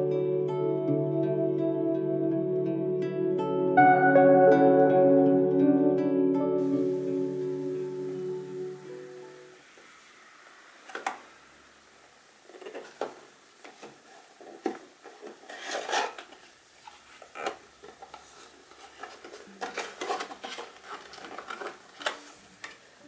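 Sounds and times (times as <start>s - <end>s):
cardboard rubbing and scraping: 14.0s - 17.4s.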